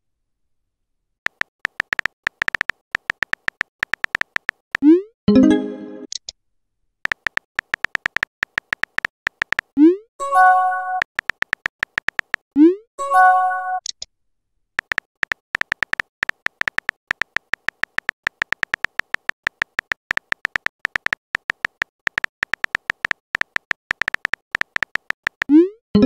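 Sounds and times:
phone keyboard typing clicks: 1.3s - 4.8s, 7.0s - 9.8s, 11.0s - 12.4s, 14.8s - 26.0s.

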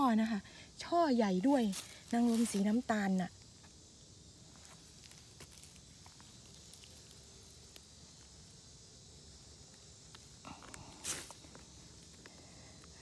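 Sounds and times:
insect chorus: 0.0s - 13.0s
glove rustling against bark: 1.1s - 13.0s
small ticks: 5.0s - 8.6s.

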